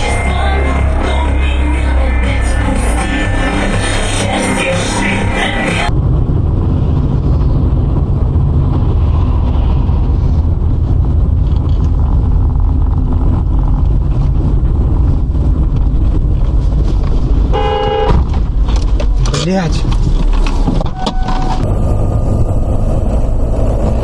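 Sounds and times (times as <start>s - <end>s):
car driving rumble from inside: 5.9s - 24.0s
car horn honking: 17.5s - 18.2s.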